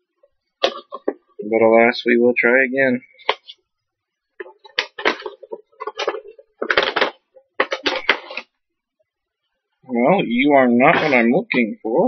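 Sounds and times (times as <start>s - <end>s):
packaging crinkling: 4.4s - 8.5s.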